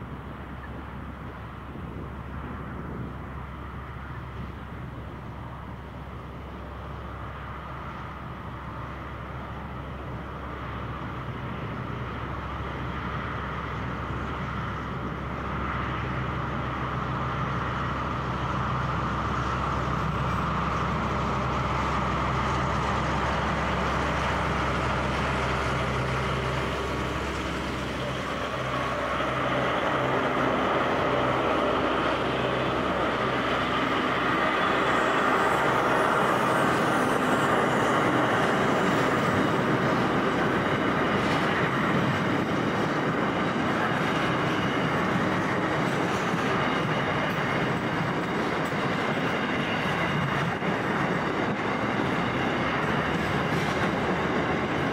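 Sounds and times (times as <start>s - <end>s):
diesel locomotive engines running: 0.0s - 54.9s.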